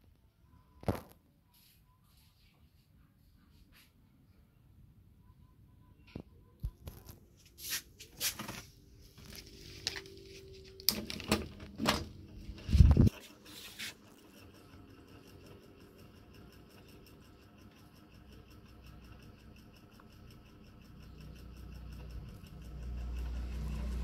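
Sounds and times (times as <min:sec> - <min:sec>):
ceiling fan starting up: 0:09.3 - 0:24.0
fan blades ticking: 0:09.3 - 0:24.0.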